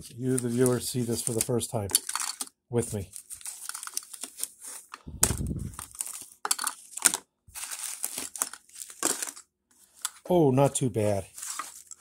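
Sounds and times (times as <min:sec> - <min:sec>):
tape crinkling and rustling: 0:00.0 - 0:10.3, 0:10.9 - 0:12.0
low rumble: 0:05.1 - 0:05.8.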